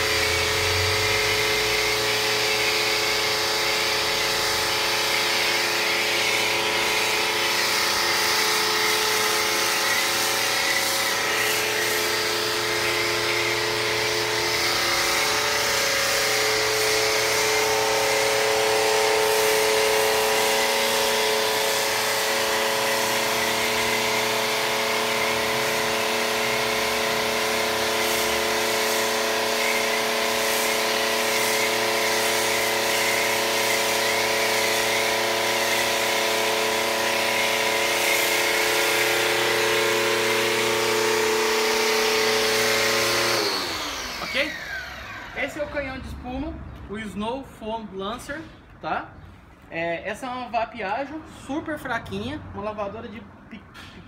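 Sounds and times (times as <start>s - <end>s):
pressure washer running: 0.0s - 46.1s
foam spraying hiss: 28.0s - 35.0s.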